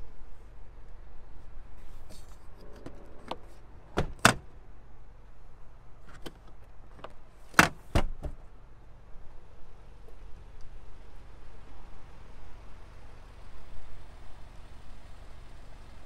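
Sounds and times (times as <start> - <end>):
seatbacks thumping flat: 7.5 - 8.4.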